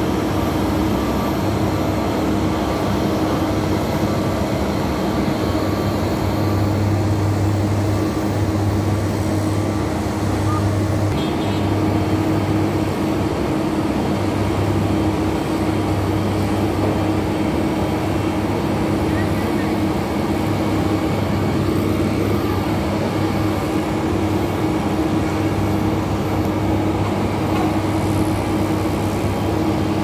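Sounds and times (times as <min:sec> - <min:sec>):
road noise: 0:00.0 - 0:29.6.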